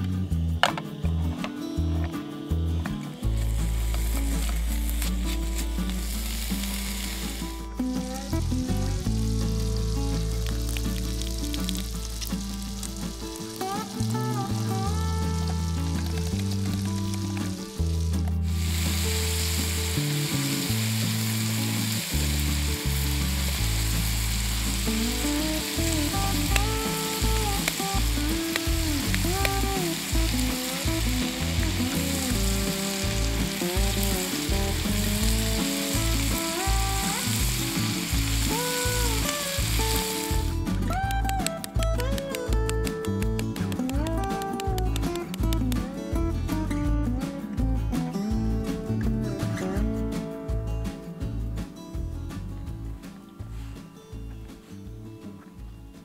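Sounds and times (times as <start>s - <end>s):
background music with bass: 0.0s - 56.0s
meat sizzling in a pan: 3.3s - 14.2s, 17.8s - 40.5s.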